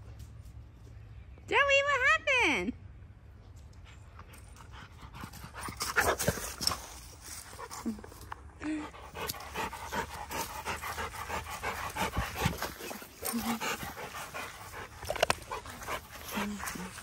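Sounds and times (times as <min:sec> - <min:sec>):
dog panting: 0:08.8 - 0:17.0.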